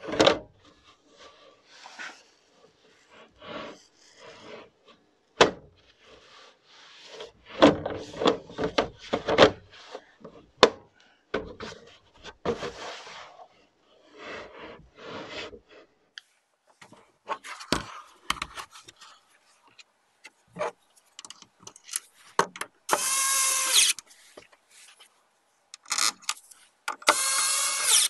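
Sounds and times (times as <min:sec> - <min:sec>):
plastic scraping and rubbing: 0:00.0 - 0:10.7, 0:11.3 - 0:15.9.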